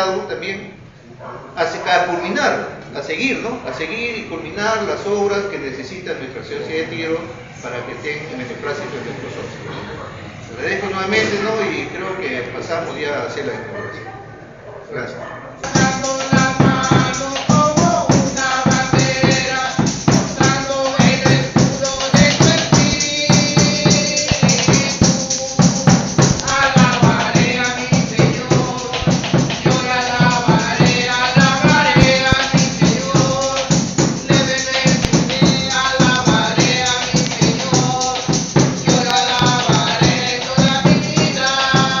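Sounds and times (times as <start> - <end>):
marching drum beating: 15.6 - 42.0
tambourine shaking: 15.6 - 42.0.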